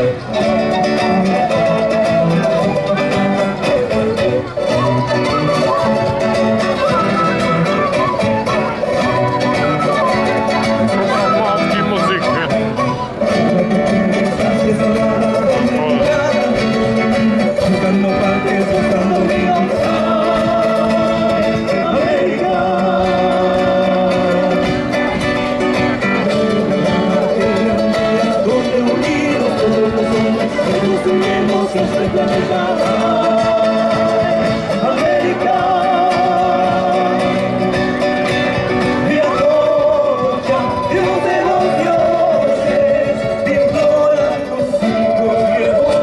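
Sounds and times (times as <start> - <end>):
folk band with guitars and drums: 0.0 - 46.0
person singing: 13.2 - 25.2, 26.0 - 46.0.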